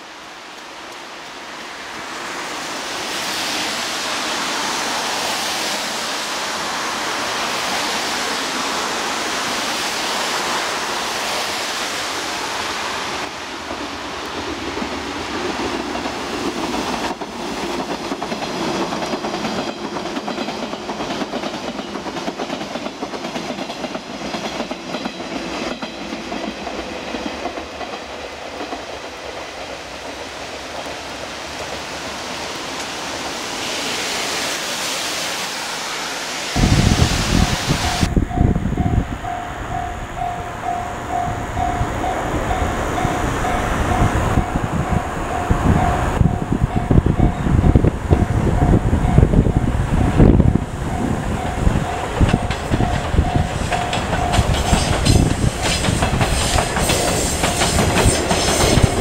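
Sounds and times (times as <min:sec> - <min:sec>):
wind and rain hiss: 0:00.0 - 0:59.0
train wheels clacking over rail joints: 0:13.6 - 0:31.9, 0:51.3 - 0:59.0.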